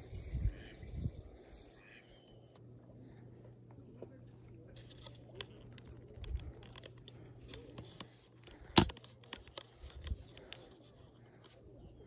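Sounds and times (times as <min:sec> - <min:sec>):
small clicks: 0:04.9 - 0:10.7.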